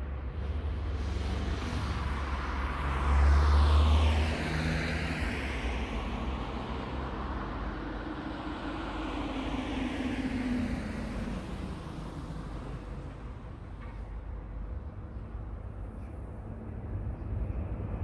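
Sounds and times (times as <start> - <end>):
road noise and low hum: 0.0 - 18.0
car driving past: 0.4 - 14.2.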